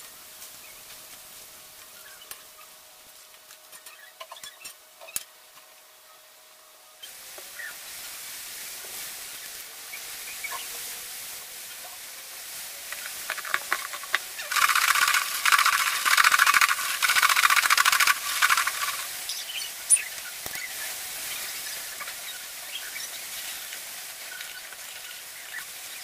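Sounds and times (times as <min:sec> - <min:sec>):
food rattling in plastic container: 0:13.4 - 0:19.1.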